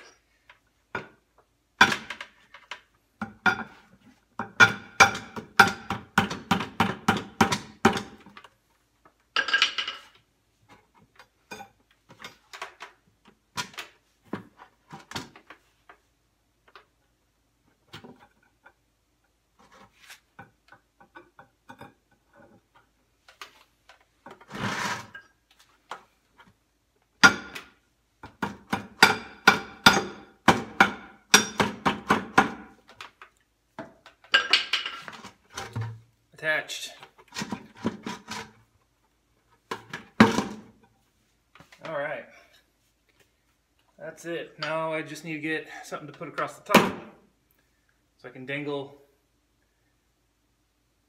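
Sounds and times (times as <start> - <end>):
short scrape: 24.5 - 25.2.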